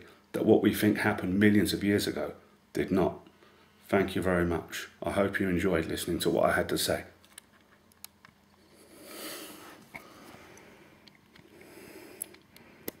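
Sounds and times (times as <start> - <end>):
soft breath through nose: 8.6 - 13.0.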